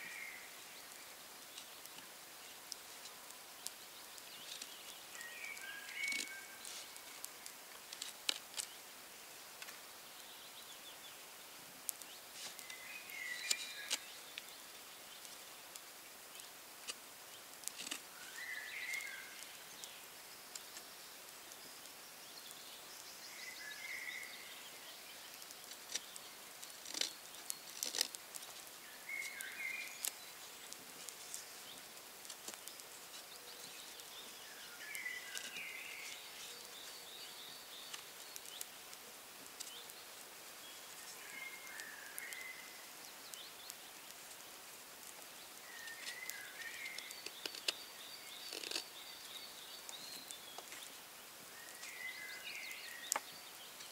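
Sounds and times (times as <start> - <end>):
songbird chirping: 0.0 - 53.9
knife carving wood: 17.6 - 18.1, 25.8 - 28.2, 48.4 - 48.9.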